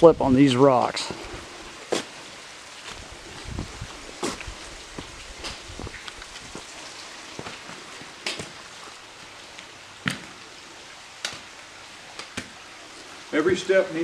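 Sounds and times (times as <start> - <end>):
water trickling over rocks: 0.0 - 14.0
boots and pole tips clicking on rock: 4.2 - 6.7.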